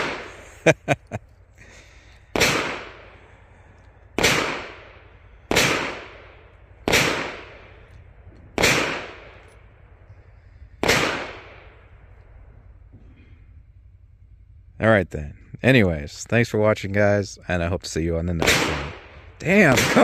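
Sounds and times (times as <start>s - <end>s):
echoing gunshots: 0.0s - 1.0s, 1.7s - 14.1s, 18.3s - 20.0s.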